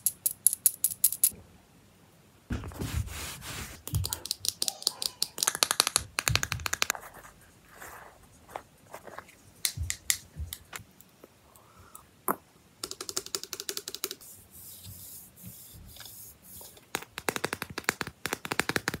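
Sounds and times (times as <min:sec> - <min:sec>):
fingernail tapping on paper card: 0:03.9 - 0:07.0, 0:16.9 - 0:19.0.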